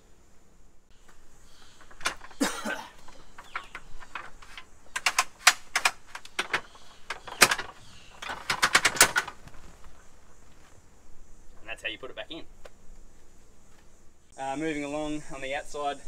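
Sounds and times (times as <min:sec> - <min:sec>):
metal clicks and rattles: 0:01.1 - 0:09.7
metal sections scraping: 0:01.1 - 0:10.0.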